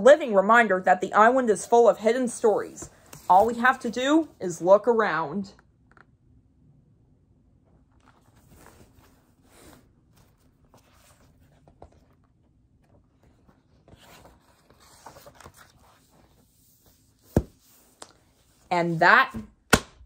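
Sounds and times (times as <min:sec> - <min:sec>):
paper pages rustling: 0:07.9 - 0:18.6.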